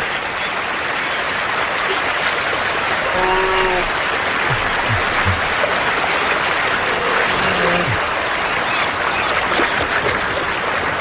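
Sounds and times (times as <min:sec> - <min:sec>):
rushing river water: 0:00.0 - 0:11.0
short low sounds: 0:03.2 - 0:05.6.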